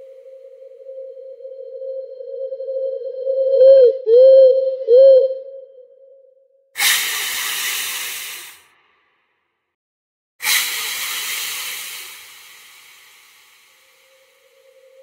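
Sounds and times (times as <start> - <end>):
loud hisses: 6.8 - 8.6, 10.4 - 15.0.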